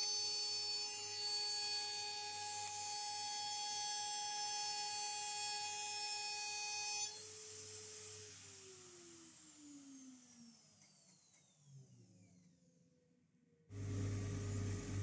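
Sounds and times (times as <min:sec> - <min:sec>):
router spindle whine: 0:07.1 - 0:11.7, 0:13.7 - 0:15.0.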